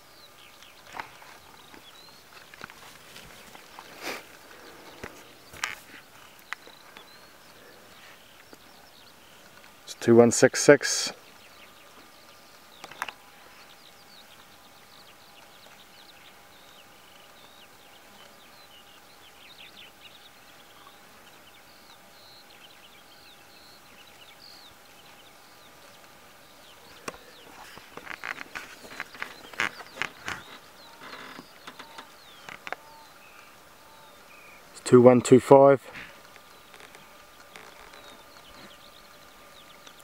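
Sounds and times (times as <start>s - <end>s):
faint bird chirps: 0.0s - 40.0s
deer cropping grass: 0.8s - 8.7s, 26.9s - 32.8s, 35.9s - 40.0s.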